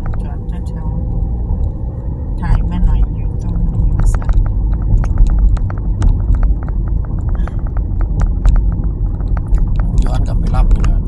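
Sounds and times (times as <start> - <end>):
car road and engine rumble: 0.0 - 11.0
sharp irregular ticks: 2.4 - 11.0.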